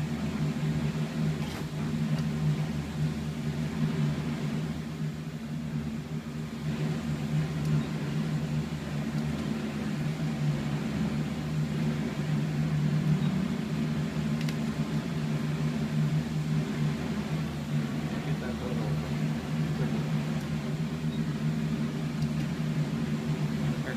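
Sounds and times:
low mechanical hum: 0:00.0 - 0:23.9.

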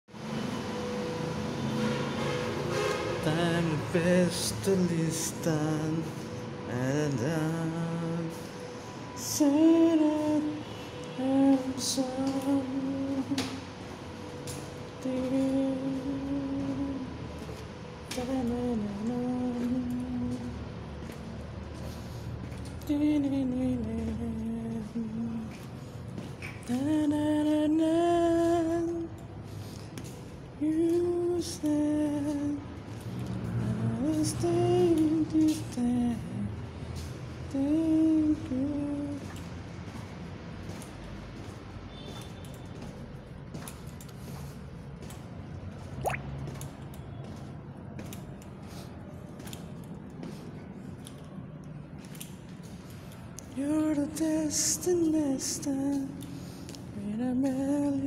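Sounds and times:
person singing slow melody: 0:03.1 - 0:40.9, 0:51.9 - 0:58.0
footsteps on concrete stairs: 0:39.3 - 0:51.2.

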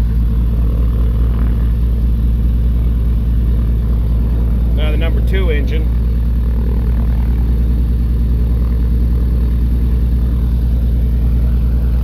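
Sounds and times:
aircraft engine idling: 0:00.0 - 0:12.0.

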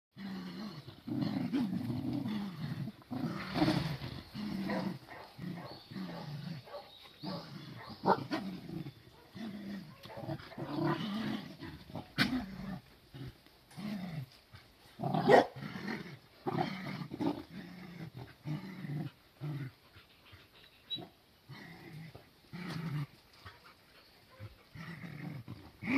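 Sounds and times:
dogs growling and grunting: 0:00.2 - 0:14.4, 0:15.0 - 0:20.0, 0:21.0 - 0:25.9
dogs barking: 0:04.6 - 0:08.4, 0:15.2 - 0:15.6.

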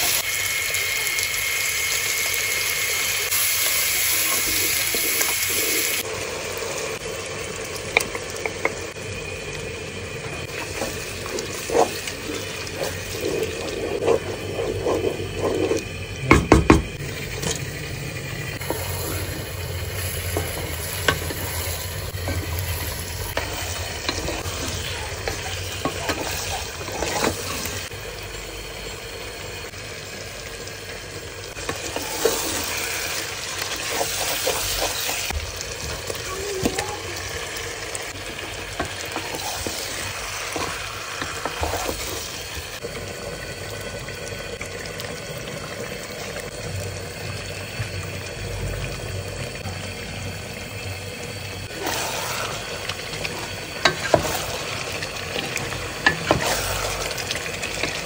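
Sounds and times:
food sizzling in oil: 0:00.0 - 0:58.0
spatula scraping pan: 0:10.5 - 0:15.9.

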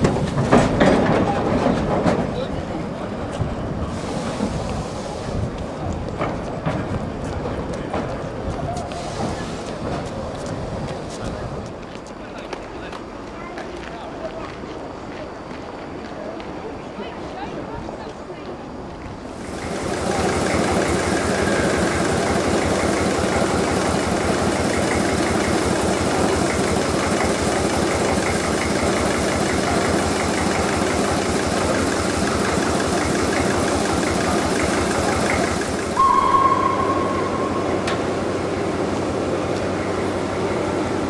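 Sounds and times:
steam locomotive rumbling and hissing: 0:00.0 - 0:41.0
short high train whistle: 0:36.0 - 0:38.8.

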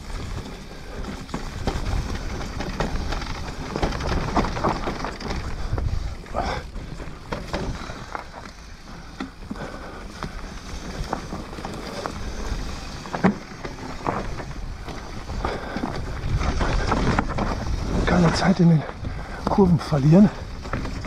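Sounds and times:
wind rushing over microphone: 0:00.0 - 0:08.4, 0:14.0 - 0:21.0
bike rattling over bumps: 0:00.0 - 0:21.0.

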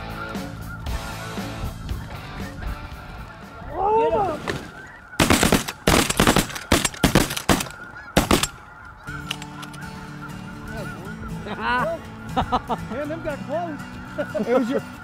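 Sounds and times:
geese calling: 0:00.0 - 0:15.0
shotgun shots: 0:05.2 - 0:08.6.

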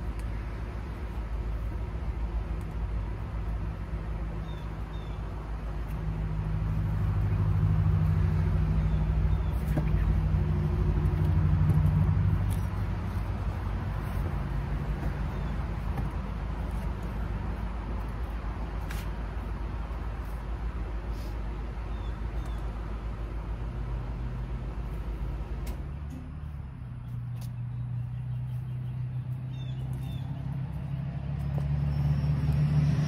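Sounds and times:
engine humming: 0:00.0 - 0:33.0.

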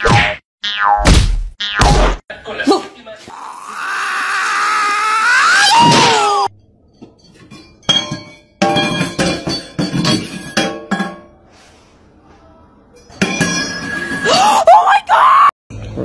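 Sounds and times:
loud wailing cry: 0:03.3 - 0:06.5.

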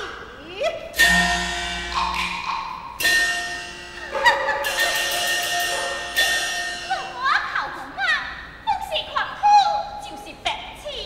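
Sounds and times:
metal gongs ringing: 0:01.0 - 0:08.5.

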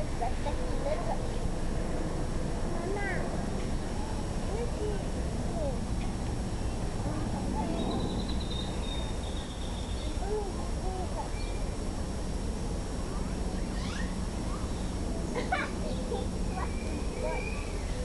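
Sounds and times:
faint distant voices: 0:00.0 - 0:18.0
low outdoor rumble: 0:00.0 - 0:18.0
bird trilling: 0:13.6 - 0:14.9, 0:16.6 - 0:18.0.

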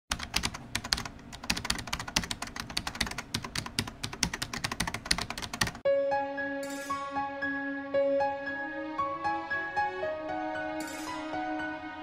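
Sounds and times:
music: 0:05.8 - 0:12.0.

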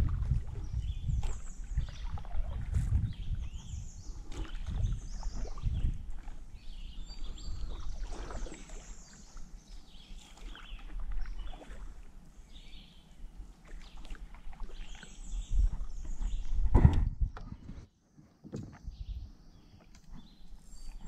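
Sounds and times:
wind rumble on microphone: 0:00.0 - 0:08.6, 0:14.0 - 0:17.9, 0:18.6 - 0:19.4
small birds chirping: 0:00.5 - 0:21.0.

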